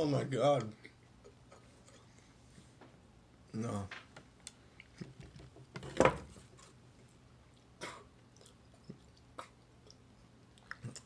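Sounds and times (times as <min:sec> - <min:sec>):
man coughing: 0:07.8 - 0:08.1.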